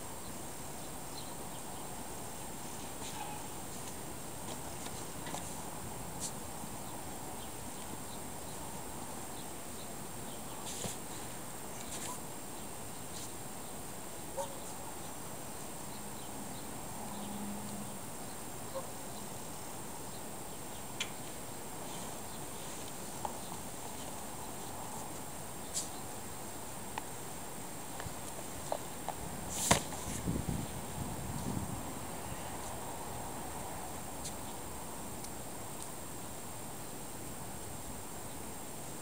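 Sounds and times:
outdoor background hiss: 0.0s - 39.0s.

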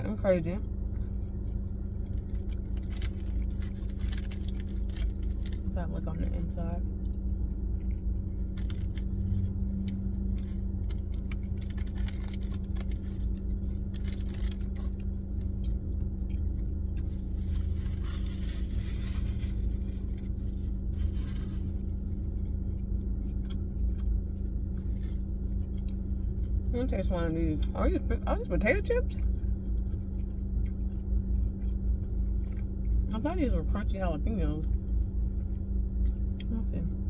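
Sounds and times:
car engine idling hum: 0.0s - 37.0s
chewing clicks and smacks: 0.8s - 5.7s, 6.9s - 17.3s, 21.8s - 26.7s, 29.0s - 33.2s, 34.6s - 37.0s
rustling: 17.0s - 22.4s.

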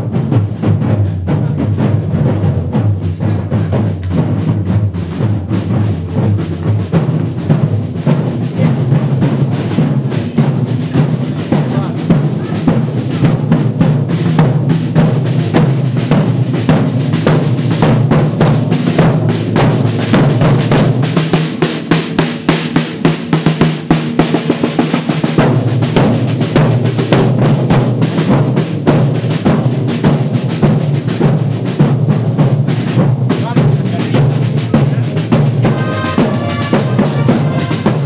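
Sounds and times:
marching snare drums: 0.0s - 38.0s
bagpipes droning: 35.6s - 38.0s.

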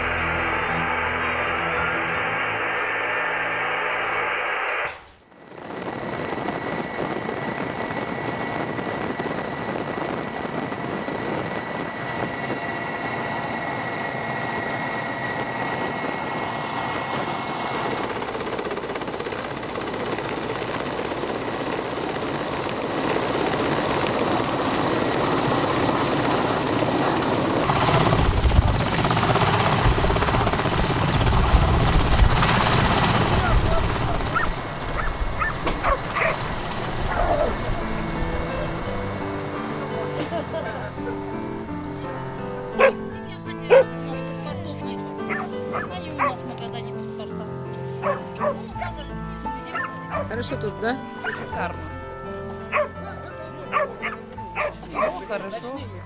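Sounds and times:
music: 0.0s - 4.4s, 17.6s - 30.7s, 36.2s - 56.0s
engine running with high whine: 0.0s - 44.0s.

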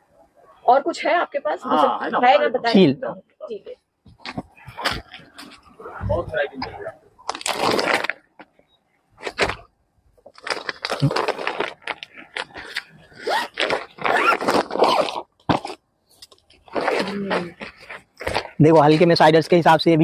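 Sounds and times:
plastic wrapping crinkling: 7.2s - 8.3s, 9.3s - 18.6s.

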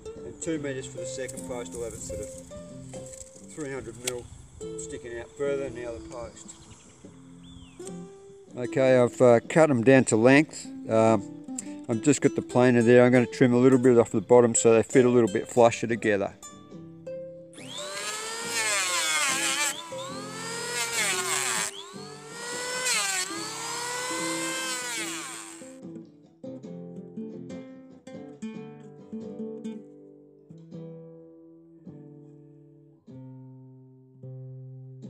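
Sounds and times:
plucked guitar music: 0.0s - 17.8s, 18.4s - 35.0s
electric hand planer shaving wood: 17.6s - 25.8s.

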